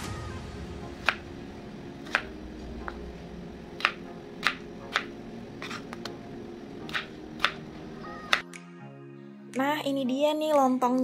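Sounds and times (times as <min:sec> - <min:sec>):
knife chopping on cutting board: 0:02.0 - 0:03.0, 0:03.8 - 0:06.1, 0:06.8 - 0:07.6.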